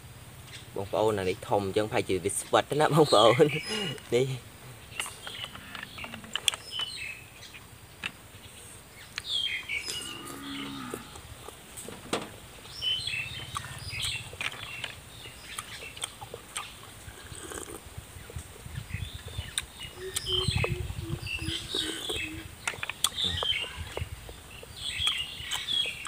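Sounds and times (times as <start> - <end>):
cattle mooing: 9.9 - 11.2
wet sucking and slurping: 15.6 - 17.8.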